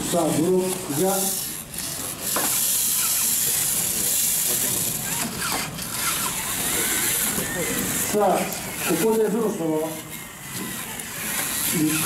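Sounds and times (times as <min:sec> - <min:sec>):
faint voices: 0:03.2 - 0:12.0.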